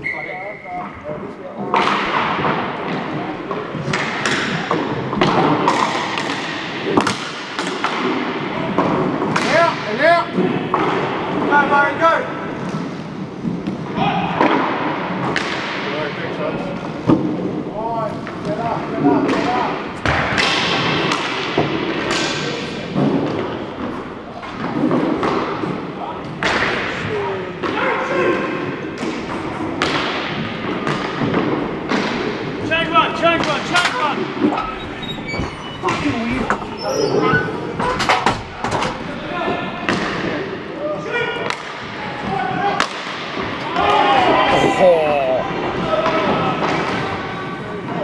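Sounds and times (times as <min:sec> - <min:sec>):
din of play in hall: 0:00.0 - 0:48.0
hockey sticks clacking: 0:01.6 - 0:16.1, 0:16.8 - 0:28.0, 0:29.0 - 0:40.5, 0:41.4 - 0:44.0, 0:45.7 - 0:48.0.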